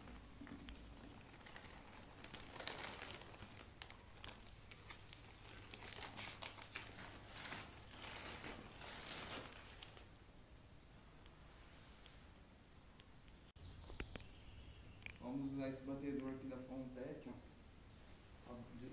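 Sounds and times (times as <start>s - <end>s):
mortar bag crinkling and rustling: 0.0s - 10.1s
sharp crackles of bag: 0.7s - 10.1s.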